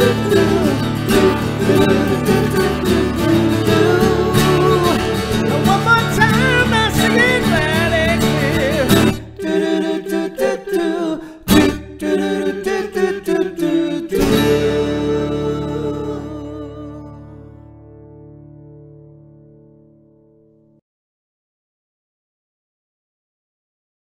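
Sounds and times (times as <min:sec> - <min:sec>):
man singing: 0:00.0 - 0:17.4
acoustic guitar strumming: 0:00.0 - 0:20.7.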